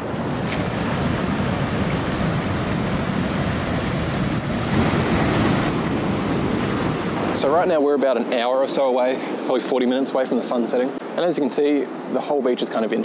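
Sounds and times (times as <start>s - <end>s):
ocean surf rushing: 0.0s - 13.0s.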